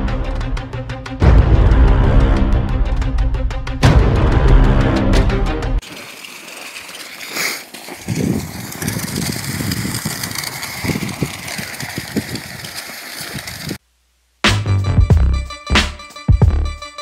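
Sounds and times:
wind on microphone: 8.0 - 13.8.

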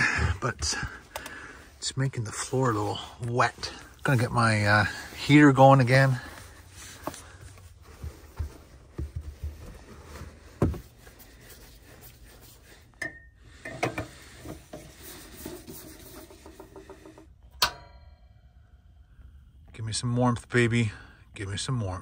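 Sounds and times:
handling knocks and rubbing: 0.4 - 13.0, 13.7 - 17.3.

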